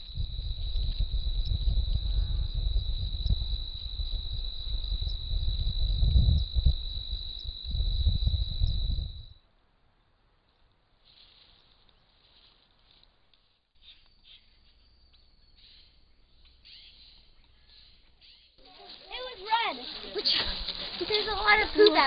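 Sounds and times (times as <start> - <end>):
uneven low rumble: 0.0 - 9.3
crickets trilling: 0.0 - 9.4, 13.8 - 22.0.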